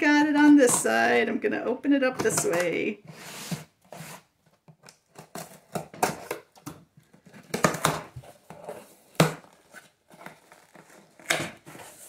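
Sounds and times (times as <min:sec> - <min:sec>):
cardboard flaps scraping and rustling: 0:07.2 - 0:12.0.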